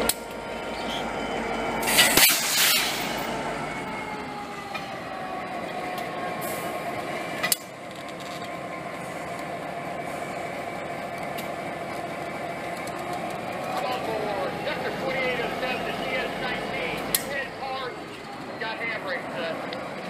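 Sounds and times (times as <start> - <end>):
falling whine: 0.0 - 8.0
locomotive engine rolling past: 0.0 - 20.0
sharp metal clank: 1.8 - 3.3
loud hiss: 1.8 - 3.4.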